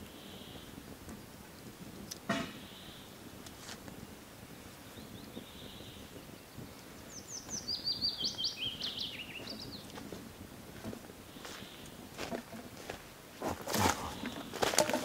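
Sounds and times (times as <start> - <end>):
songbird chirping: 4.7 - 15.0.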